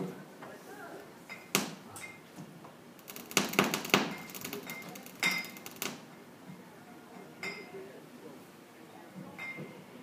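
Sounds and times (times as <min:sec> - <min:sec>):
glass bottles knocking and clicking: 0:03.6 - 0:05.7
glass clink ringing: 0:04.1 - 0:05.6, 0:07.4 - 0:07.7, 0:09.4 - 0:09.7.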